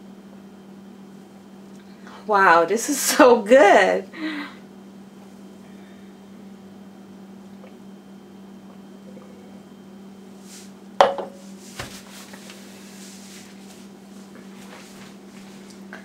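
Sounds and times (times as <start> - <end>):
glass clinking on stone countertop: 11.0 - 11.4
soft knock: 11.0 - 11.4.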